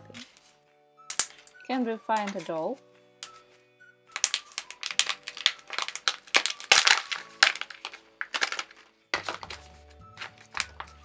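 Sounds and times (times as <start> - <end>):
foil peeling off plastic: 4.1 - 11.0.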